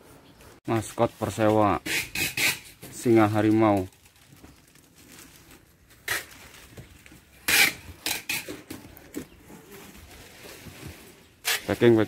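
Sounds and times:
plastic rustling on bird cage: 2.8s - 12.0s.

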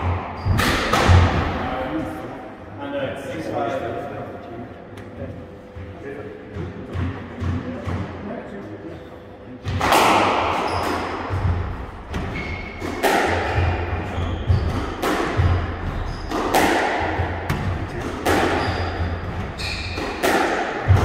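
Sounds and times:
squash ball hit by rackets: 0.0s - 1.6s, 9.6s - 21.0s
shoes squeaking on wooden floor: 18.5s - 20.0s.

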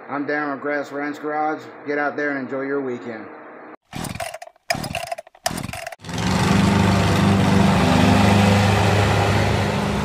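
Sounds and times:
riding lawn mower engine running: 3.9s - 10.0s.

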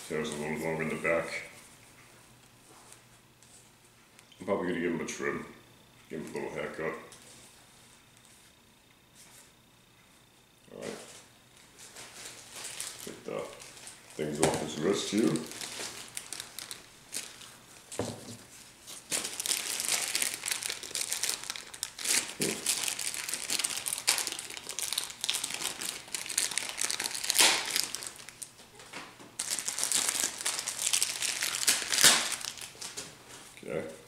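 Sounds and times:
plastic wrapping crinkling: 11.8s - 33.6s.

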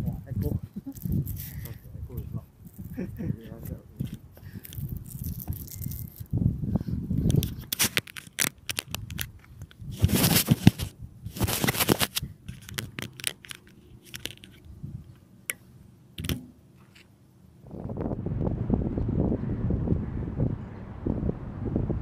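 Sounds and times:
wind rumble on microphone: 0.0s - 13.1s, 14.2s - 15.2s, 17.6s - 22.0s
gravel crunching and scraping: 0.4s - 15.2s
sharp clicks and knocks: 16.2s - 17.1s.

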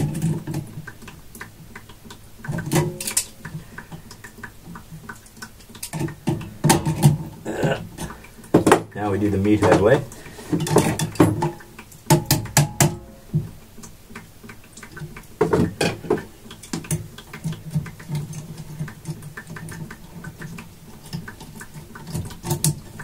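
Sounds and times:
metal hand tools clicking and rattling: 2.4s - 3.5s.

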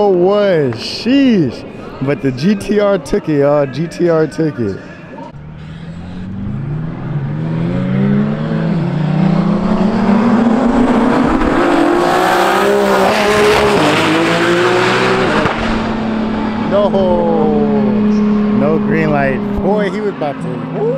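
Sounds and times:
race car engines accelerating: 4.5s - 20.9s.

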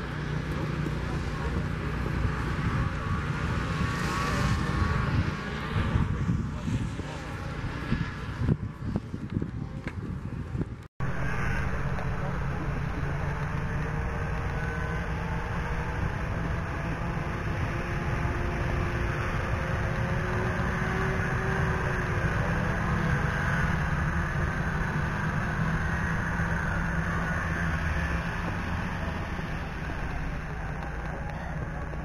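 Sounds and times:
distant snowmobile engines droning: 0.0s - 32.0s.

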